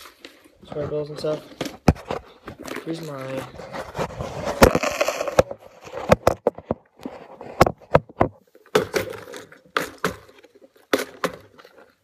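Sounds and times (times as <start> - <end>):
plastic box clicks and knocks: 4.6 - 6.9, 7.6 - 11.6.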